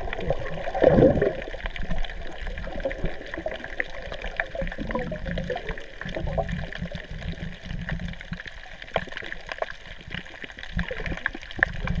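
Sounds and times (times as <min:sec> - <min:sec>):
sharp underwater clicks and crackles: 0:00.0 - 0:12.0
underwater rumble of moving water: 0:00.0 - 0:12.0.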